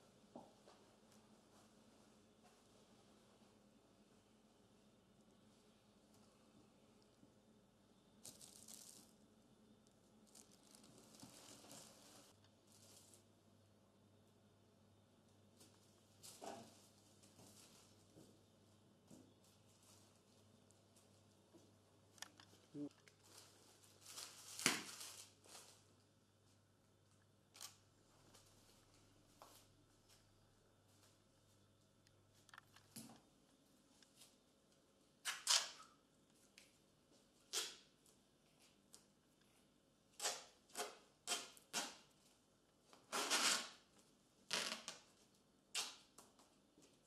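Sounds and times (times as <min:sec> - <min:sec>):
tape ripping off a roll: 0:08.2 - 0:09.1, 0:23.9 - 0:25.6, 0:35.2 - 0:36.0, 0:37.5 - 0:37.9, 0:40.2 - 0:42.1, 0:43.0 - 0:43.9, 0:44.5 - 0:45.1, 0:45.7 - 0:46.2
bandage and plastic rustling: 0:08.2 - 0:09.2, 0:10.2 - 0:13.2, 0:22.3 - 0:25.9.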